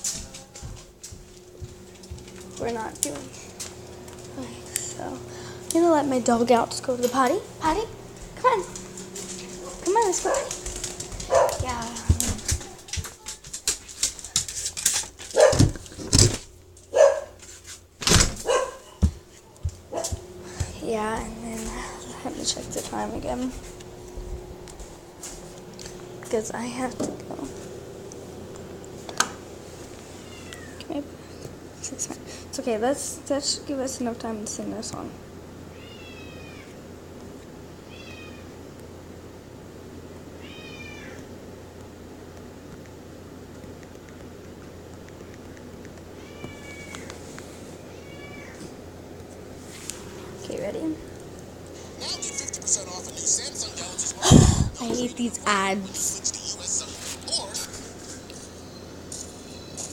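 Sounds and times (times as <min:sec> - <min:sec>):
steady low hum: 0:00.0 - 0:59.9
dog barking: 0:09.6 - 0:10.6, 0:11.3 - 0:11.6, 0:15.3 - 0:15.7, 0:16.9 - 0:17.4, 0:18.4 - 0:19.0, 0:19.9 - 0:20.2
cat meowing: 0:30.2 - 0:30.8, 0:35.7 - 0:36.7, 0:37.8 - 0:38.5, 0:40.4 - 0:41.2, 0:46.2 - 0:47.2, 0:47.9 - 0:48.7, 0:52.0 - 0:52.7.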